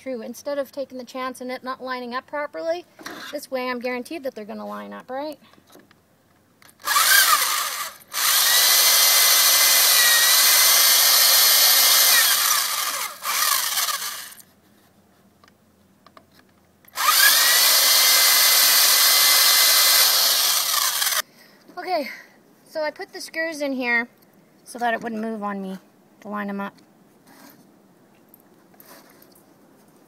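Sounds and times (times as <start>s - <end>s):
electric drill whining: 6.8s - 14.4s, 16.9s - 21.2s.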